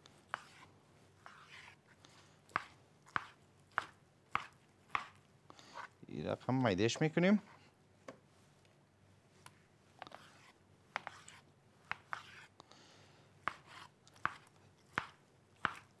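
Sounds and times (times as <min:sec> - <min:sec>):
knife chopping on cutting board: 0:02.6 - 0:05.2, 0:13.5 - 0:15.9.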